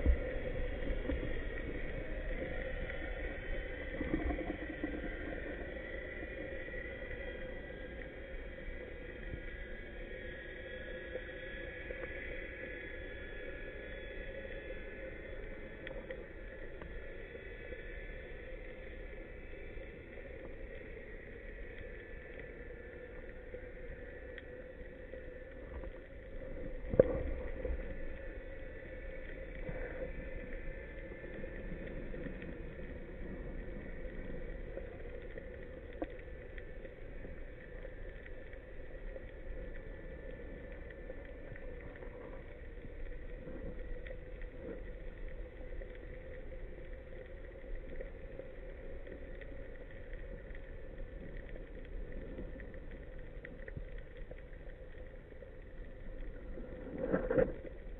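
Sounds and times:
underwater hiss: 0.0s - 54.3s
faint steady hum: 0.0s - 57.9s.

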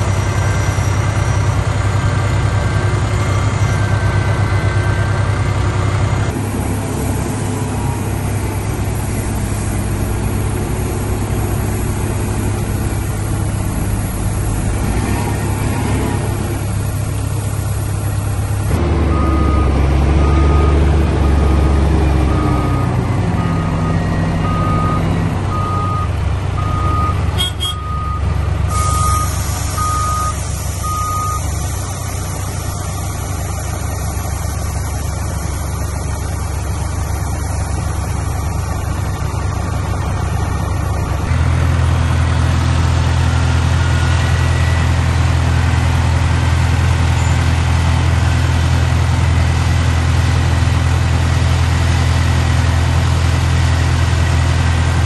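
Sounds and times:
truck reversing alarm beeping: 0.0s - 48.9s
heavy diesel engines running: 0.0s - 55.0s.

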